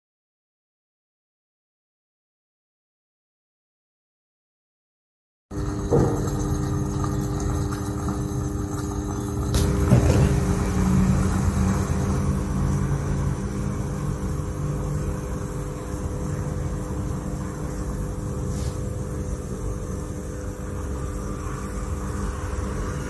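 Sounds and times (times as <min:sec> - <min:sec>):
furnace rumble and electrical hum: 0:05.5 - 0:23.0.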